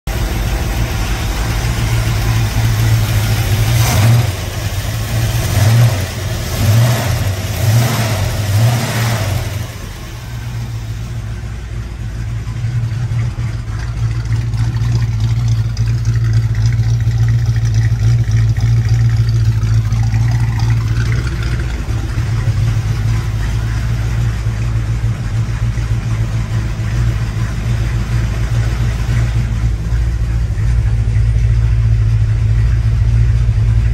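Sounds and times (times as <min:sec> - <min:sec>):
engine revving and idling: 0:00.1 - 0:33.9.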